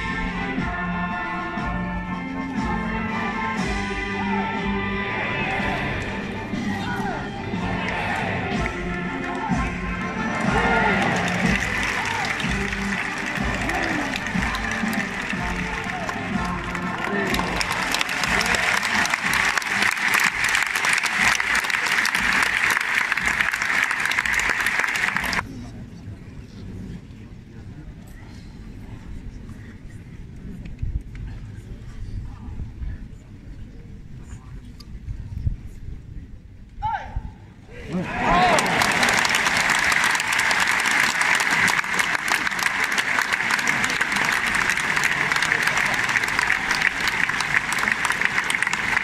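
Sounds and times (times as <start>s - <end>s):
crowd applauding: 7.5s - 25.4s, 37.9s - 49.0s.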